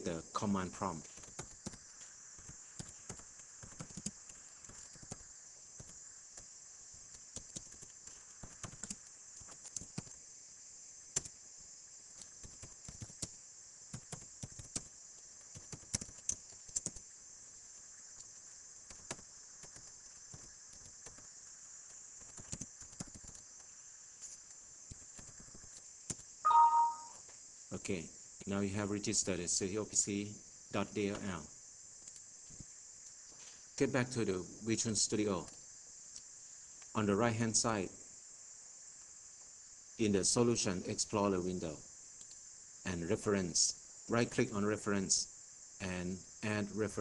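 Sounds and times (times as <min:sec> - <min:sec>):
steady high-pitched hiss: 0:00.0 - 0:47.0
keyboard typing clicks: 0:07.3 - 0:10.1, 0:15.5 - 0:17.0.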